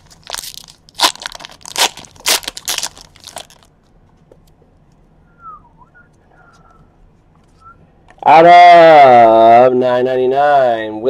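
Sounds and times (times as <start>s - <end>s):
foil wrapper crinkling and ripping: 0.0s - 3.7s.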